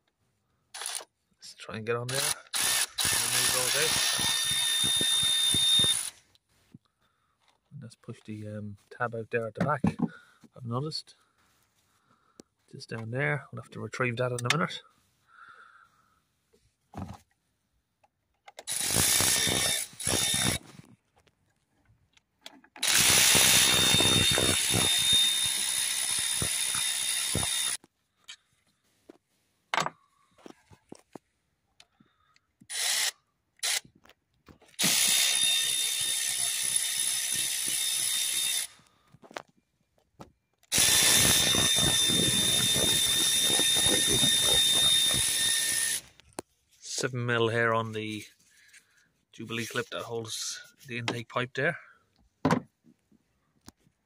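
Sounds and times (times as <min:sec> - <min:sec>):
cordless power tool whining: 0:02.1 - 0:06.2, 0:18.6 - 0:20.8, 0:22.8 - 0:27.8, 0:32.7 - 0:33.9, 0:34.8 - 0:38.9, 0:40.7 - 0:46.2.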